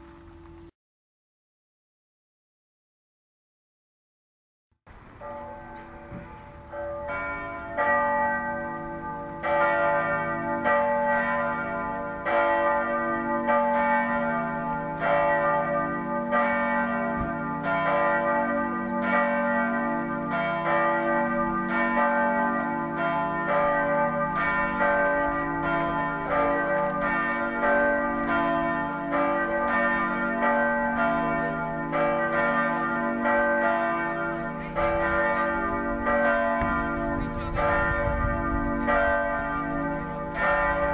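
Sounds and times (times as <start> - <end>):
church bells pealing: 4.9 - 40.9.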